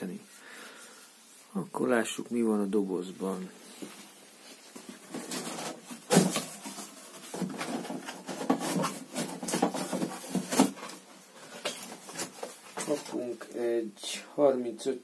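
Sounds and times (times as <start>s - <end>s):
cardboard flaps rustling: 4.0s - 13.3s.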